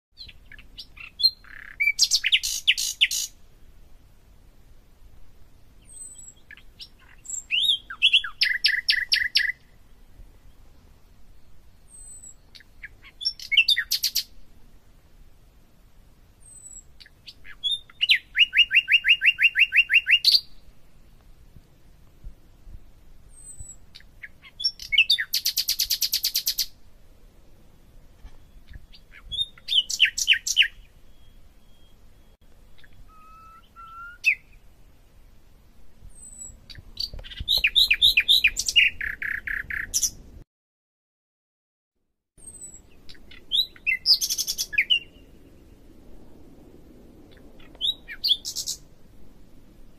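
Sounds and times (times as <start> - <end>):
songbird trilling song: 0.2 - 3.4, 5.5 - 14.4, 16.4 - 20.8, 23.2 - 26.8, 27.9 - 34.7, 36.0 - 40.4, 42.4 - 45.9, 47.2 - 48.9.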